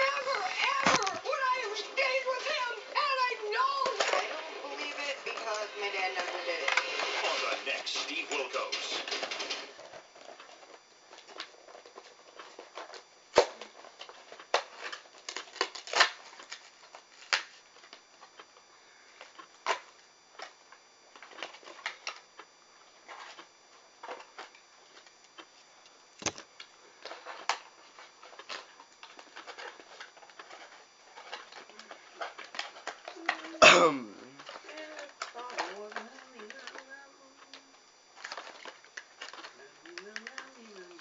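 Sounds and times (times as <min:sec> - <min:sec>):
packaging rustling and clicking: 0:00.0 - 0:18.6, 0:26.2 - 0:33.6, 0:34.4 - 0:37.6, 0:38.2 - 0:41.0.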